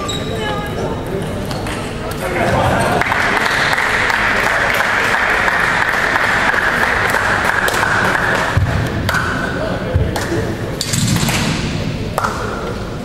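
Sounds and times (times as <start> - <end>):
crowd applauding: 2.2 - 8.6.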